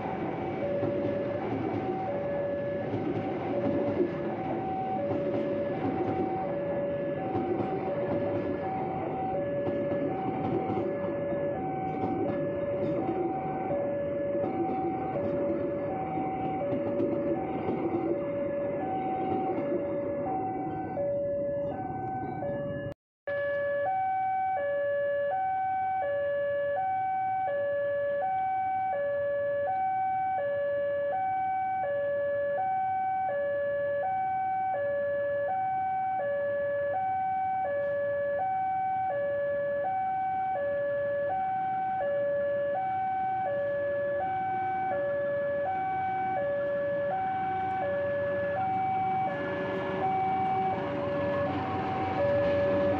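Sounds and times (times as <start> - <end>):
passing train rumble: 0.0 - 23.0, 43.0 - 52.9
level crossing two-tone alarm: 0.0 - 52.9.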